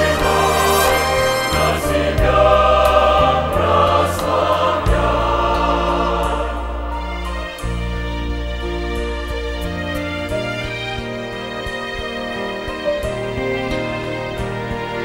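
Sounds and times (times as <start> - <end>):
choir singing a hymn: 0.0 - 7.8.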